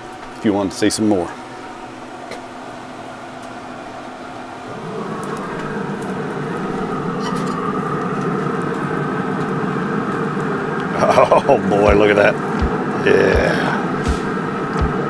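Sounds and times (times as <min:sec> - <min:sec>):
grill fire and fan noise: 0:00.0 - 0:15.0
sausages sizzling over flame: 0:04.6 - 0:15.0
small crackles: 0:04.7 - 0:11.0.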